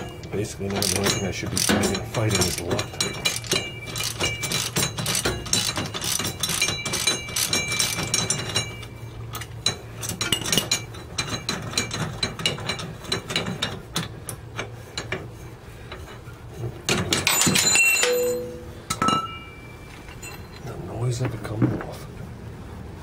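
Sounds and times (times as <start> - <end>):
ringing metallic clatter: 0.0 - 13.8, 16.9 - 20.8.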